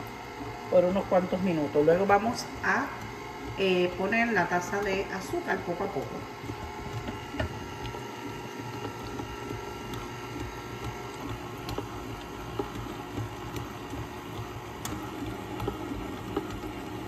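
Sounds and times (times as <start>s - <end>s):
stand mixer motor hum: 0.0s - 17.0s.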